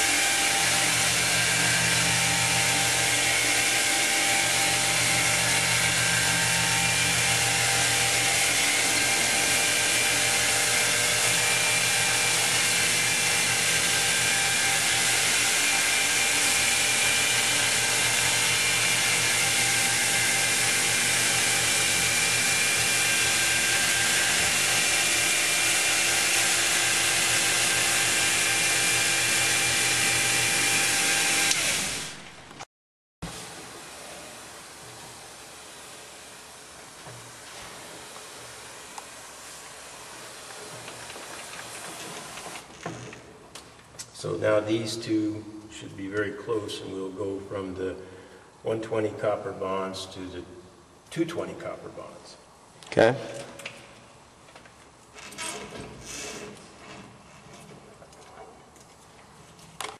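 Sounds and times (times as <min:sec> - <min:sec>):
wet polisher grinding stone: 0:00.0 - 0:31.9.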